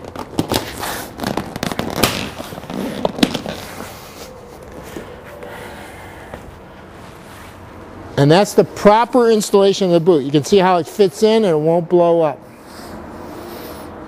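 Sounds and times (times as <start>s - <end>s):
fabric cover rubbing and scraping: 7.0s - 7.8s.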